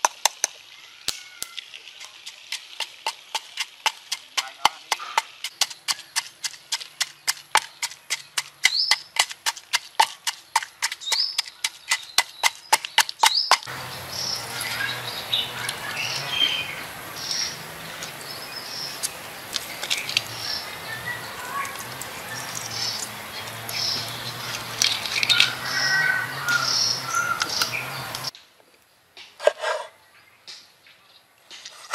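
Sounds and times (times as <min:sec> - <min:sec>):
steady outdoor hiss: 0:00.0 - 0:31.9
birds chirping: 0:00.8 - 0:29.0
pestle pounding in wooden mortar: 0:02.2 - 0:13.8.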